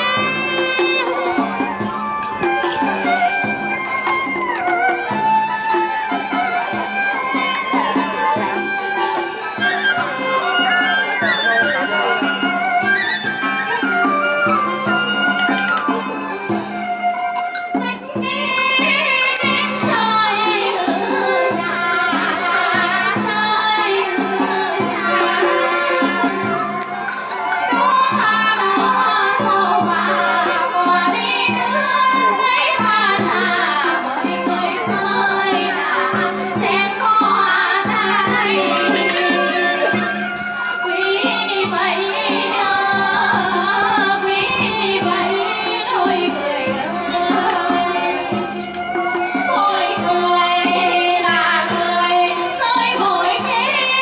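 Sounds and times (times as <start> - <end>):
bamboo flute: 0.0 - 54.0
percussion strokes: 0.0 - 54.0
women singing with vibrato: 17.8 - 54.0.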